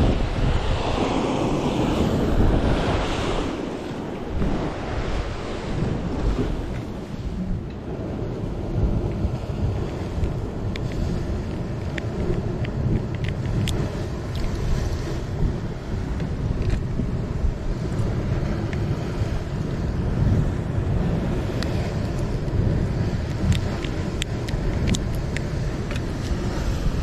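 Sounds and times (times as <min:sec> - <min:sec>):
sea washing against rocks: 0:00.0 - 0:27.0
wind buffeting microphone: 0:00.0 - 0:27.0
faint clicks: 0:09.8 - 0:14.6.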